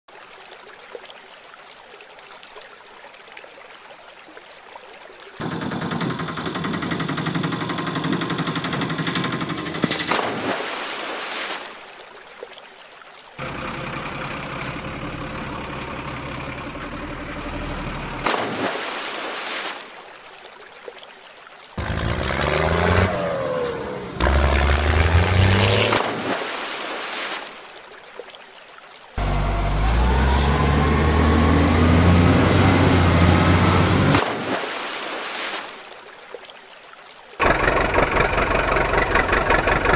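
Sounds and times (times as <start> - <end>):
rattling small engine: 5.4 - 10.2, 13.4 - 18.2, 37.4 - 39.9
toy splashing into water: 10.0 - 11.8
vehicle engine revving: 21.8 - 26.2, 29.2 - 34.3.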